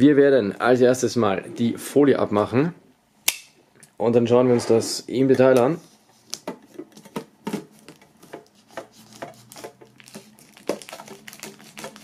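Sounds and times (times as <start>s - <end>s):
plastic wrap crackling: 7.0s - 12.0s
knife cutting plastic shrink-wrap: 7.8s - 12.0s.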